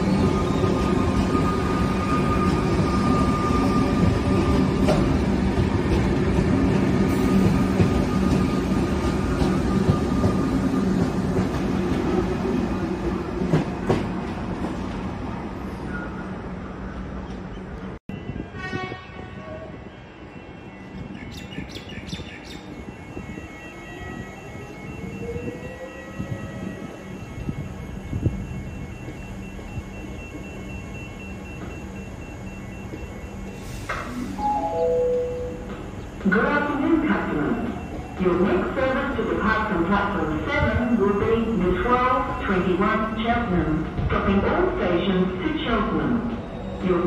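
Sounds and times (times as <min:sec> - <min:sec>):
electric train rolling past: 0:00.0 - 0:47.0
station ambience: 0:22.4 - 0:47.0
high pitched tone: 0:34.4 - 0:35.8.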